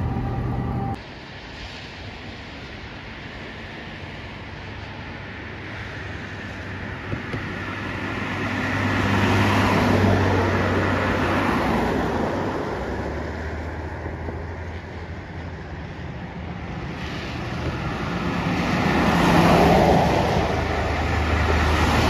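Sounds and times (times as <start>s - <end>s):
vehicle passing by: 7.6s - 22.0s.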